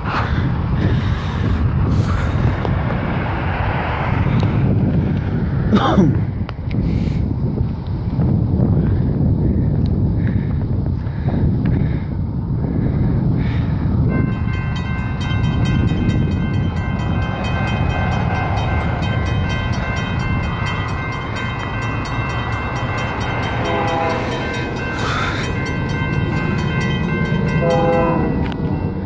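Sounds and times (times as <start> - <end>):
crossing bell ringing: 14.0 - 29.0
distant locomotive air horn blasts: 22.6 - 25.7, 26.6 - 28.6.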